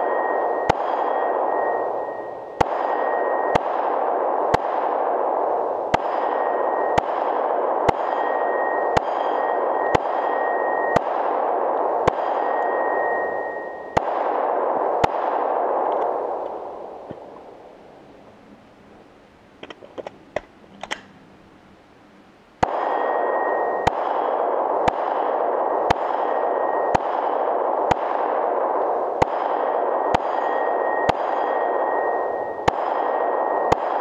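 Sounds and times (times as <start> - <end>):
steel plate ringing: 0.0 - 3.6, 7.9 - 11.0, 30.1 - 33.8
pistol shots: 0.0 - 17.4, 22.6 - 34.0.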